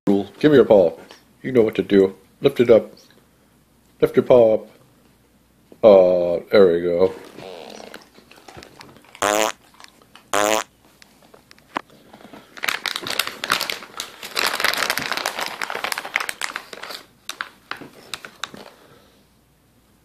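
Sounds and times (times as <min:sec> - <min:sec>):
plastic snack bag crinkling: 0:12.2 - 0:18.8.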